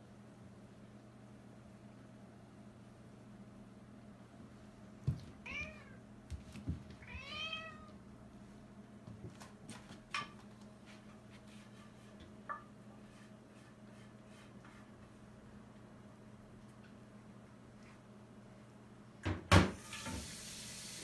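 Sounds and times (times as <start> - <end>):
cat meowing: 5.4 - 6.0, 7.0 - 8.0.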